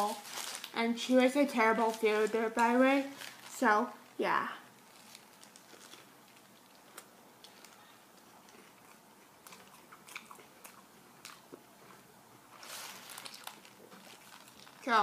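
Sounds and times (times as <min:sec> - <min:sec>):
chewing food: 0:05.1 - 0:12.1.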